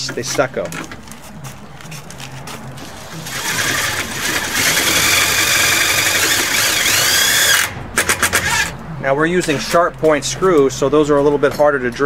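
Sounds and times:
cordless drill whining: 3.0s - 8.7s.

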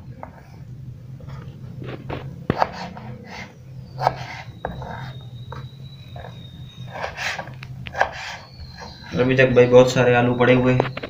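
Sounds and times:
low steady hum: 0.0s - 11.0s
knife rasping strokes: 2.5s - 9.2s.

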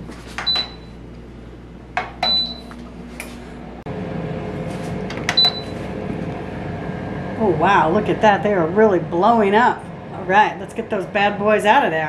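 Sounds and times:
oven fan whirring: 0.0s - 12.0s
control panel beeping: 2.2s - 2.7s.

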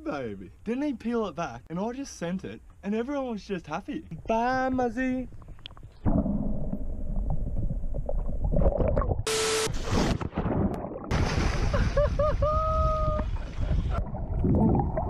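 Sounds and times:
water gurgling and sloshing: 5.2s - 15.0s
person splashing in water: 9.9s - 12.1s
person whooping: 12.2s - 13.3s.

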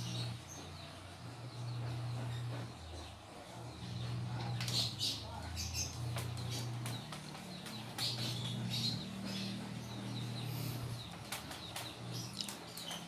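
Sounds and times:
small birds chirping: 0.0s - 13.0s
steady low hum: 0.0s - 13.0s
sharp clicks: 11.2s - 13.0s.

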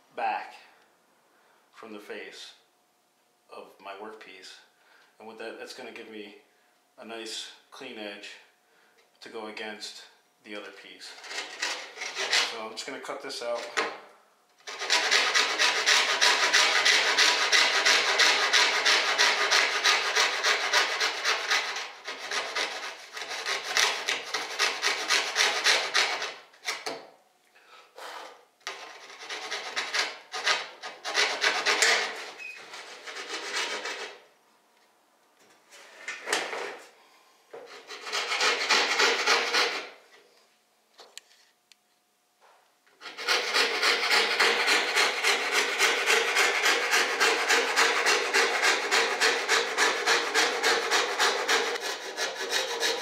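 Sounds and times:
coping saw rasping through wood: 11.2s - 12.6s, 14.6s - 26.8s, 28.7s - 34.2s, 37.7s - 40.0s, 43.0s - 53.0s.

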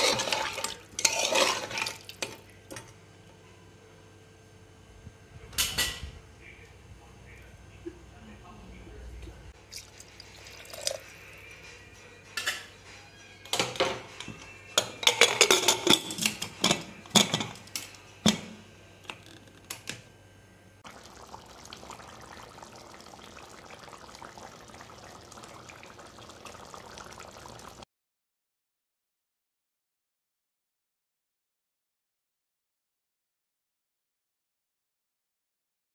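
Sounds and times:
water pouring into a pot: 0.0s - 2.5s, 9.6s - 11.2s, 20.8s - 27.8s
metal lid clanking: 14.8s - 19.2s.

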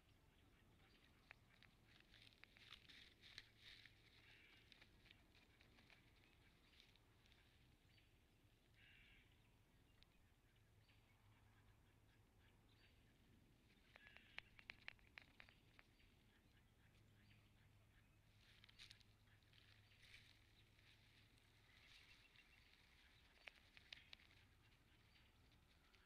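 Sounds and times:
faint outdoor background hiss: 0.0s - 26.0s
small sharp clicks: 13.7s - 16.4s, 22.4s - 26.0s.

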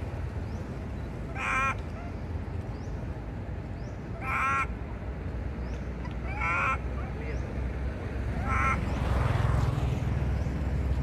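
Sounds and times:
monkey crying shrilly: 1.3s - 2.2s, 4.2s - 4.7s, 6.2s - 6.9s, 8.4s - 8.9s.

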